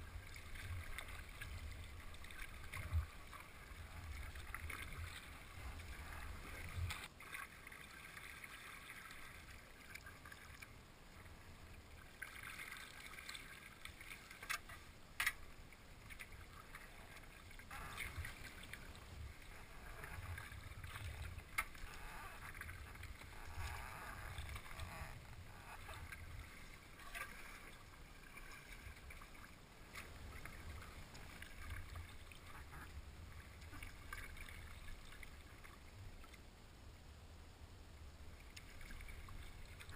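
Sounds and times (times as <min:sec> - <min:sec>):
paddle splashing in water: 0:00.0 - 0:10.7, 0:12.1 - 0:35.8.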